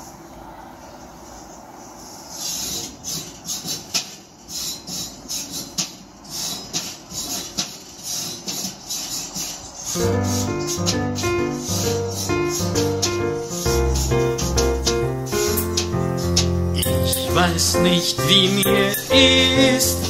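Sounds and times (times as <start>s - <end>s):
steady hiss: 0.0s - 20.0s
grill grate being scraped: 1.9s - 20.0s
piano: 9.9s - 20.0s.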